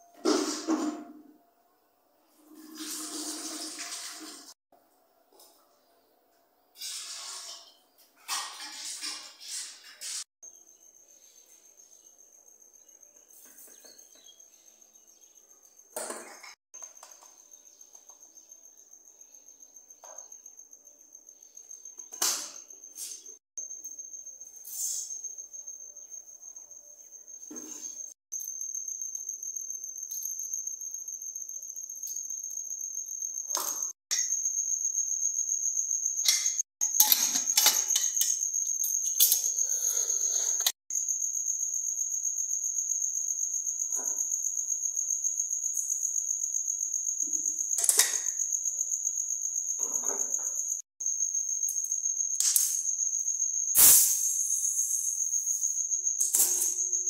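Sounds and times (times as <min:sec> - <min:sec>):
cricket trilling: 0:10.4 - 0:57.0
kitchen utensils clattering: 0:36.2 - 0:40.8.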